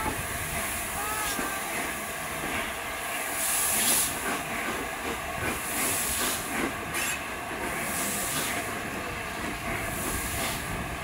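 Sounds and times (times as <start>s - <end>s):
rumble of moving locomotive: 0.0s - 11.0s
hiss of escaping steam: 3.2s - 4.7s, 5.4s - 8.8s, 9.7s - 10.8s.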